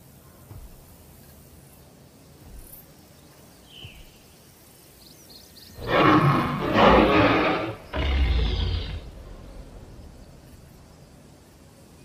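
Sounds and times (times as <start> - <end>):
dinosaur roar sound effect: 5.8 - 9.8.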